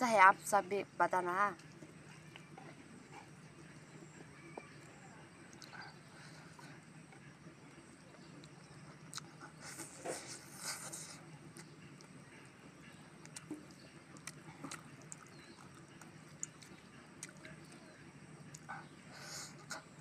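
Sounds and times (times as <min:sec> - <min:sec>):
person chewing and smacking: 0:05.5 - 0:05.9, 0:08.4 - 0:12.1, 0:12.8 - 0:19.9.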